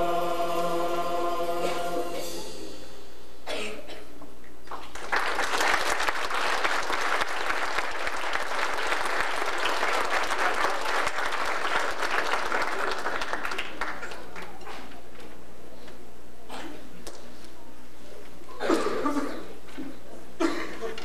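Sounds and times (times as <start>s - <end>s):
audience applauding: 4.7s - 14.6s.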